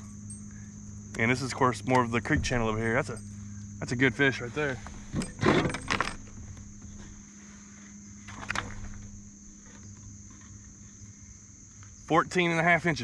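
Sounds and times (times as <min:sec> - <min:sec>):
insect chorus: 0:00.0 - 0:13.0.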